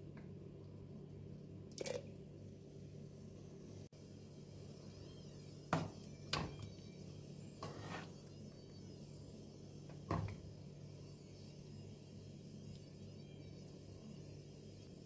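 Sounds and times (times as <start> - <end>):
steady low hum: 0.0 - 15.0
spoon scraping pot: 7.6 - 8.3.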